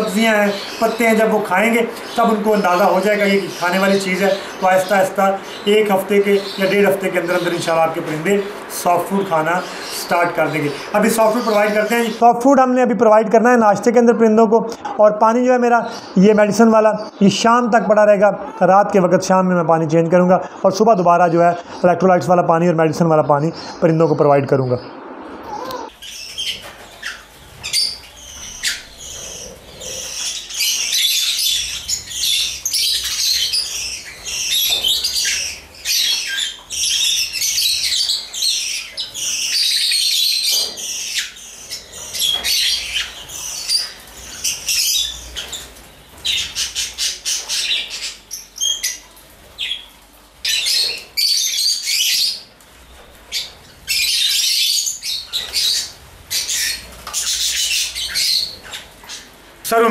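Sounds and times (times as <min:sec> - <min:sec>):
lovebirds squawking and chirping: 0:00.0 - 0:12.5, 0:24.8 - 0:59.9.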